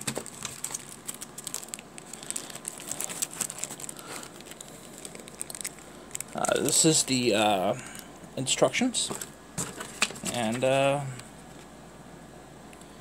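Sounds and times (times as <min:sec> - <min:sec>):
plastic packaging crinkling: 0:00.0 - 0:07.3, 0:09.0 - 0:11.7.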